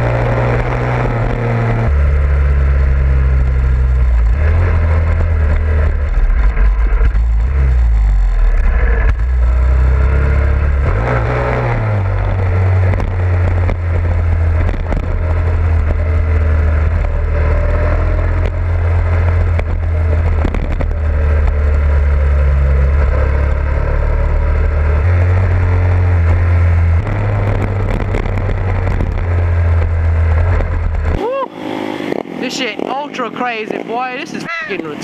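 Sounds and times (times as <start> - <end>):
motorcycle engine running: 0.0 - 35.0
other motorcycles nearby: 0.0 - 35.0
wind rumble on microphone: 3.0 - 24.0, 26.3 - 31.2.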